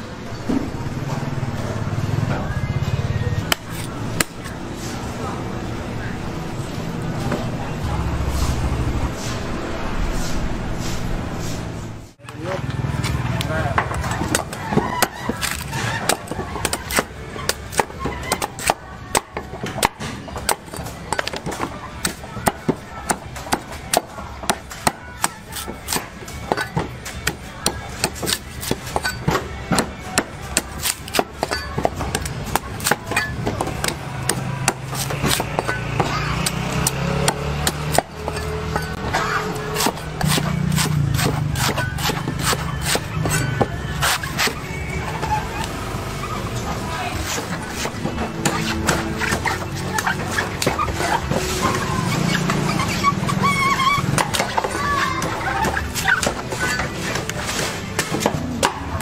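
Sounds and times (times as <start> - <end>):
cleaver chopping on wooden block: 13.8 - 44.6.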